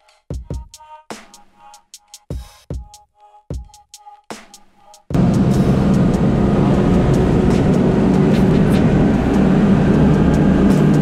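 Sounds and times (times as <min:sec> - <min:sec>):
boat engine drone: 0:05.2 - 0:11.0
rushing wind: 0:05.2 - 0:11.0.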